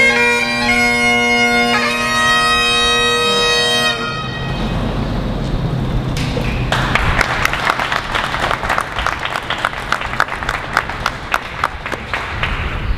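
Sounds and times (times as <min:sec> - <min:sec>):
crowd applauding: 0:06.2 - 0:12.9.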